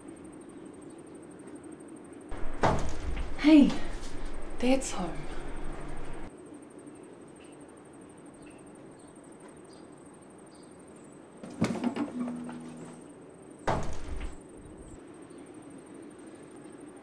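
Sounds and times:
door knock with creak: 0:02.3 - 0:03.5, 0:13.7 - 0:14.4
door shutting thud: 0:02.3 - 0:04.3, 0:13.7 - 0:14.4.

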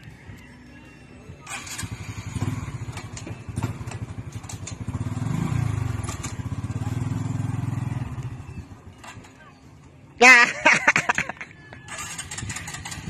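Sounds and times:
small motorcycle engine passing: 0:01.4 - 0:09.4, 0:11.9 - 0:13.0.

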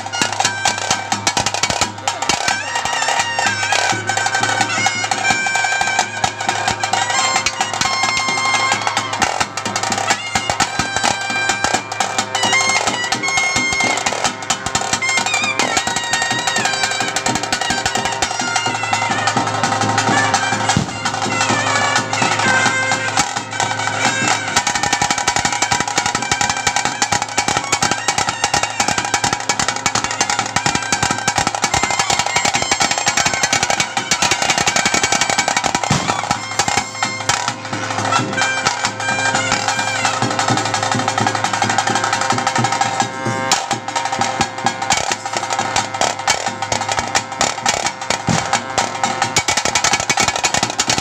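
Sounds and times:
rapid drumming: 0:00.0 - 0:51.0
shrill reed wind instrument: 0:00.0 - 0:51.0.

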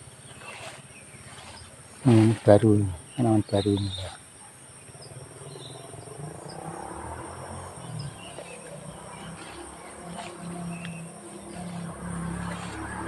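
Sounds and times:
footsteps through undergrowth: 0:00.0 - 0:03.5, 0:07.6 - 0:13.0
bird chirps: 0:00.0 - 0:13.0
insect chorus: 0:00.0 - 0:13.0.

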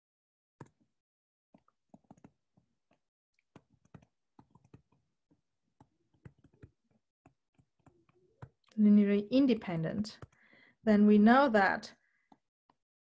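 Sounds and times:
stylus tapping on touchscreen: 0:01.6 - 0:08.8, 0:10.2 - 0:10.4.

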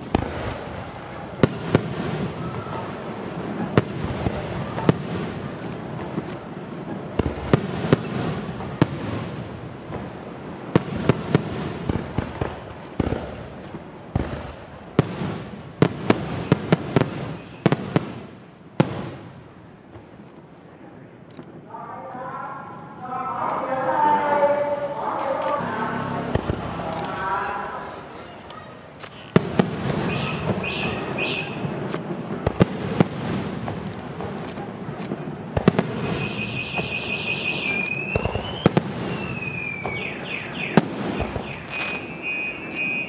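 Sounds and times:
firework crackle: 0:00.0 - 0:21.7, 0:23.6 - 0:43.0
firework shells bursting: 0:28.9 - 0:43.0.

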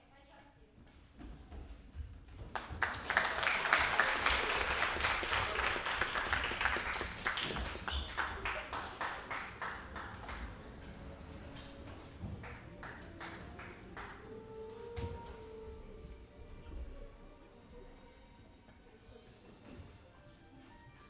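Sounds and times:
audience applauding: 0:02.5 - 0:11.7, 0:12.4 - 0:14.4.

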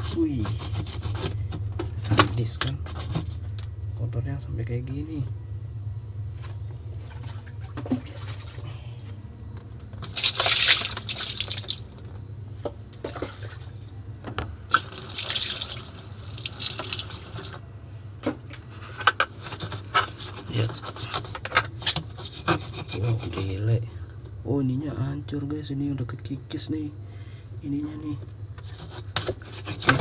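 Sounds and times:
brush scrubbing wet grime: 0:00.0 - 0:01.5, 0:02.4 - 0:03.4, 0:19.4 - 0:23.7, 0:28.6 - 0:30.0
low hum: 0:01.2 - 0:10.0.

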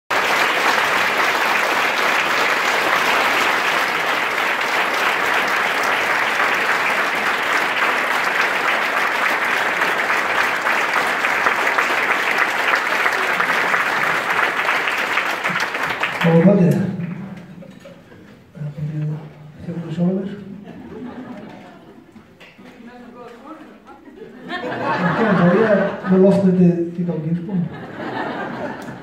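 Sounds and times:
audience applauding: 0:00.1 - 0:17.8, 0:27.9 - 0:29.0.

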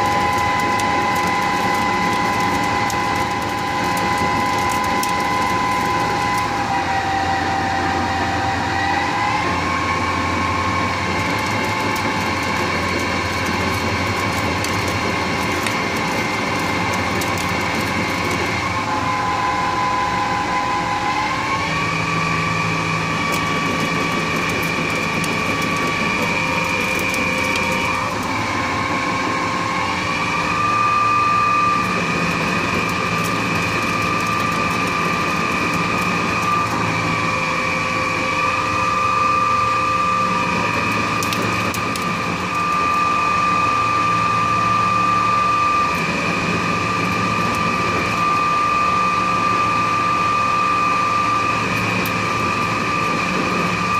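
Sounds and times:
lathe machine whine: 0:00.0 - 0:53.9
metal cutting noise: 0:00.0 - 0:53.9.

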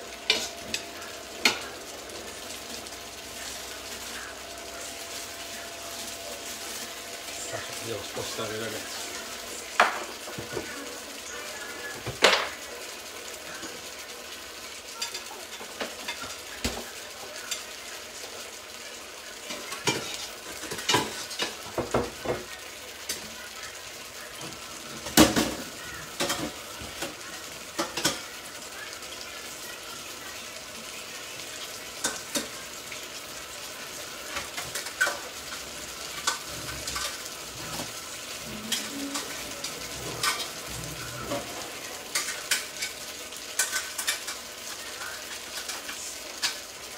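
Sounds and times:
fish sizzling in a frying pan: 0:00.0 - 0:46.9.

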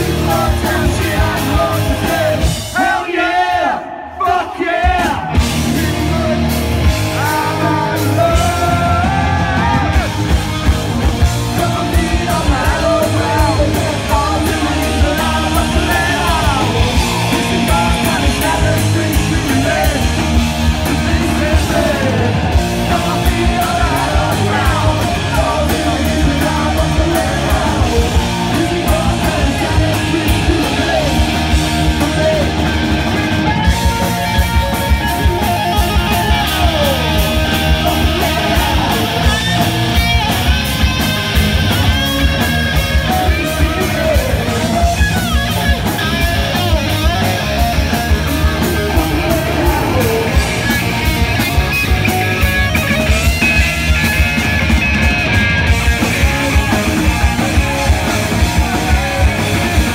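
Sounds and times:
electric guitar: 0:00.0 - 0:02.8, 0:04.9 - 0:59.9
steady drum beat: 0:00.0 - 0:03.2, 0:04.6 - 0:59.9
bass guitar: 0:00.0 - 0:03.3, 0:04.6 - 0:59.9
singer yelling and singing: 0:00.0 - 0:59.9.

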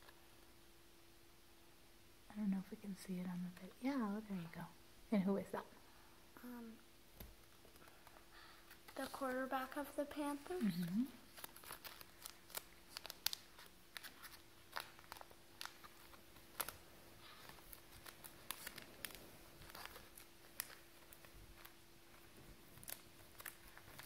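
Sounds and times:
plastic sleeve crinkling: 0:07.4 - 0:24.0.

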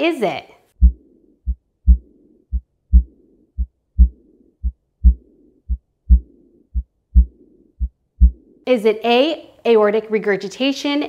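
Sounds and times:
heartbeat thumps: 0:00.8 - 0:08.6
soft hissing heart murmur: 0:00.8 - 0:08.6.

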